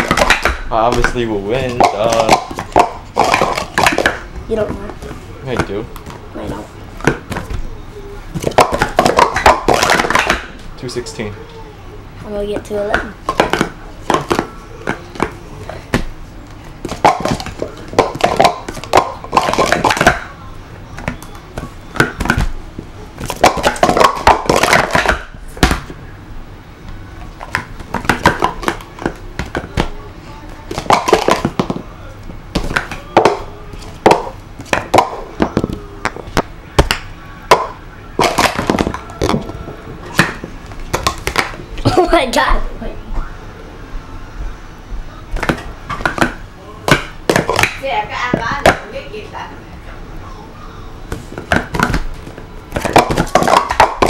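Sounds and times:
plastic cups clacking: 0:00.0 - 0:07.6, 0:08.3 - 0:10.6, 0:12.9 - 0:16.1, 0:16.8 - 0:20.3, 0:21.0 - 0:22.5, 0:23.2 - 0:25.9, 0:27.2 - 0:30.0, 0:30.7 - 0:31.8, 0:32.5 - 0:41.6, 0:45.4 - 0:48.8, 0:51.1 - 0:54.0.

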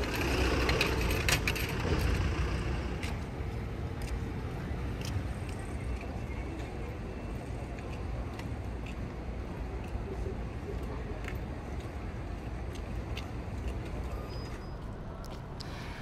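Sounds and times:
low traffic rumble: 0:00.0 - 0:16.0.

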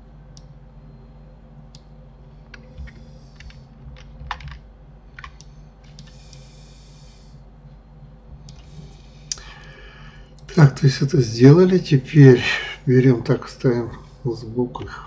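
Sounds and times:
steady low hum: 0:00.0 - 0:15.0
keyboard keystrokes: 0:02.5 - 0:04.6, 0:05.2 - 0:06.2.

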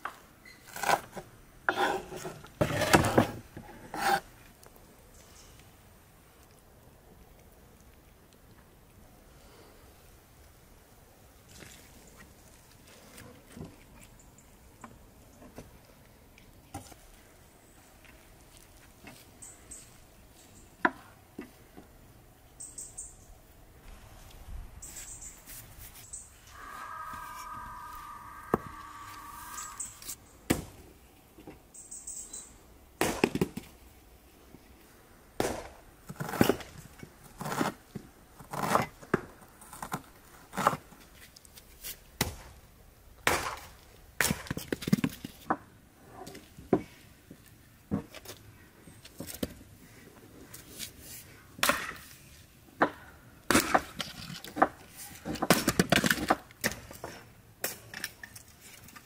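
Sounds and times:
axe chopping firewood: 0:33.0 - 0:33.6, 0:35.4 - 0:36.7, 0:43.2 - 0:44.6, 0:51.6 - 0:52.0, 0:52.8 - 0:56.8.

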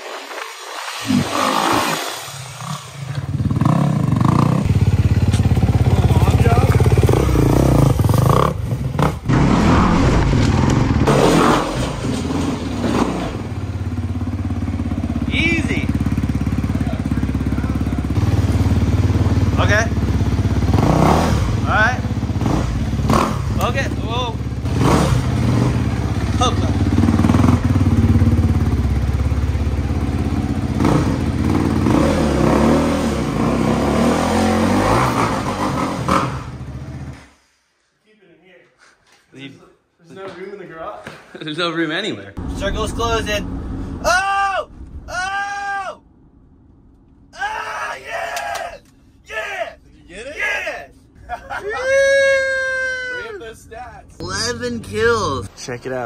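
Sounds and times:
motorcycle engine revving: 0:01.0 - 0:37.3.

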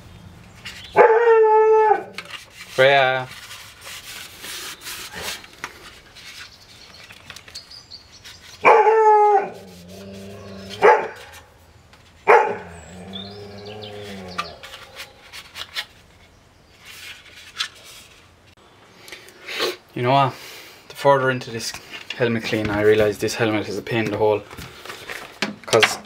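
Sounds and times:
dog barking: 0:08.6 - 0:09.5, 0:10.8 - 0:11.3, 0:12.3 - 0:12.7.

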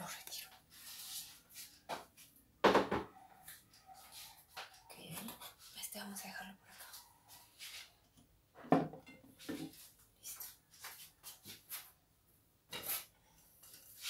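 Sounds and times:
kitchen things knocking and rustling: 0:02.0 - 0:03.2, 0:08.6 - 0:09.8.

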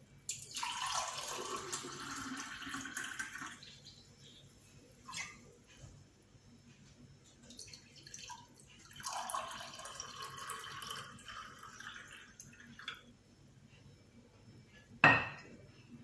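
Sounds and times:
juice pouring into glass: 0:00.3 - 0:03.7, 0:07.5 - 0:12.9.

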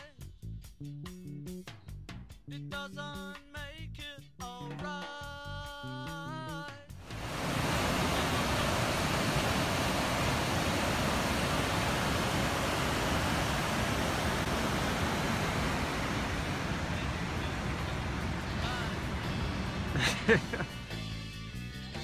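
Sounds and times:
water rushing over rocks: 0:07.1 - 0:20.8.

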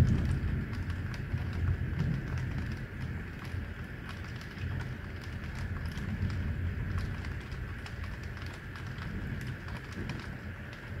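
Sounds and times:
low rumble: 0:00.0 - 0:03.5
heavy rain falling: 0:00.0 - 0:11.0
sharp ticks of raindrops: 0:00.0 - 0:11.0.

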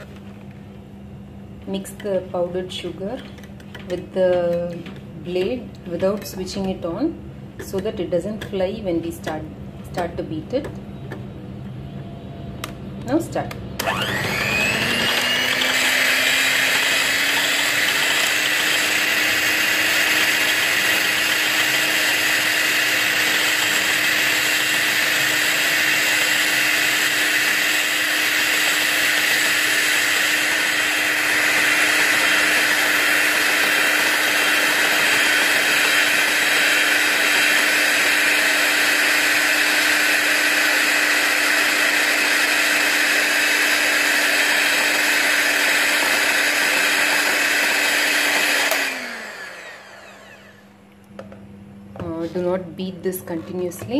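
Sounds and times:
electric hand mixer whisking cream: 0:13.8 - 0:50.7.

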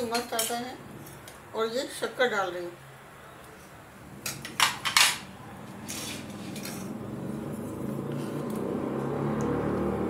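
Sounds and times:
utensils clinking on metal pot: 0:00.0 - 0:01.4, 0:04.2 - 0:05.3.

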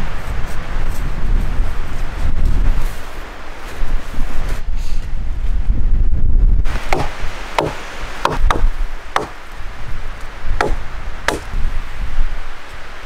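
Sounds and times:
hatchet chopping wood: 0:06.8 - 0:09.4, 0:10.6 - 0:11.6.

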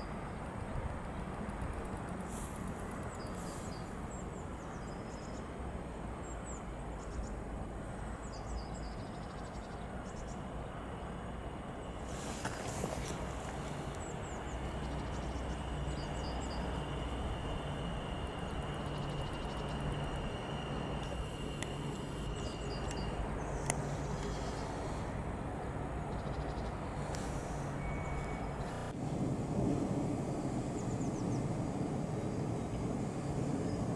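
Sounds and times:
train low hum: 0:00.0 - 0:33.9
thin high whine: 0:10.0 - 0:33.9.

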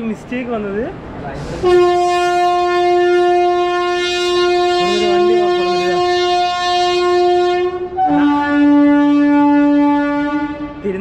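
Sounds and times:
train horn blast: 0:01.4 - 0:11.0
person speaking: 0:04.7 - 0:06.4.

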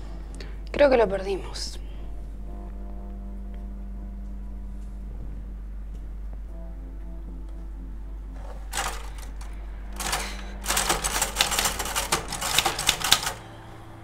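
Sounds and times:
typewriter key clacks: 0:08.4 - 0:13.4.

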